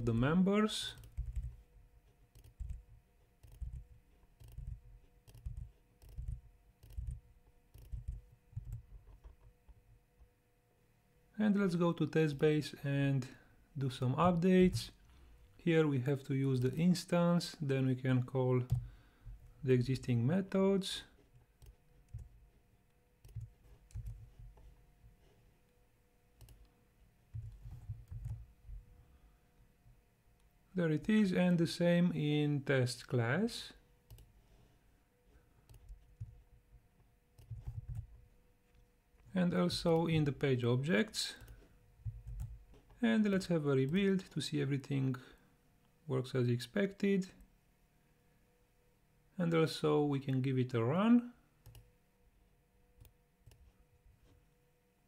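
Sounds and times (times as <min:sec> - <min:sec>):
faint keyboard typing: 0:00.0 - 0:10.3, 0:14.2 - 0:15.0, 0:18.6 - 0:19.6, 0:21.1 - 0:25.4, 0:26.4 - 0:29.0, 0:34.0 - 0:34.4, 0:35.3 - 0:40.4, 0:41.0 - 0:44.4, 0:51.6 - 0:52.0, 0:53.0 - 0:54.5
faint steady hum: 0:00.0 - 0:55.0
keyboard and mouse clicks: 0:01.0 - 0:01.6, 0:02.3 - 0:09.5, 0:23.2 - 0:24.7, 0:27.3 - 0:28.4, 0:37.4 - 0:38.2.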